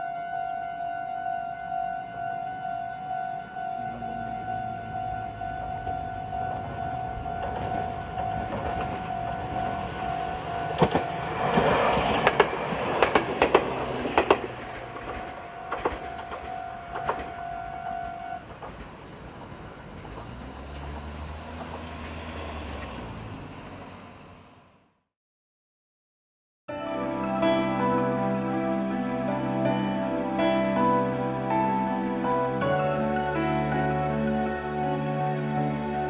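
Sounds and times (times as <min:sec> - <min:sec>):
level crossing warning bell: 0:00.0 - 0:20.3
low car rumble: 0:03.0 - 0:16.0, 0:18.4 - 0:24.9
train wheels clacking on rail joints: 0:06.5 - 0:23.0.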